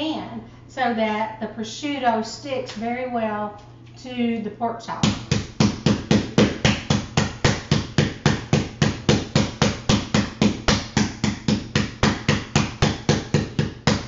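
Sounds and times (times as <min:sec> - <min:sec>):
wooden mallet pounding meat: 0:05.0 - 0:14.0.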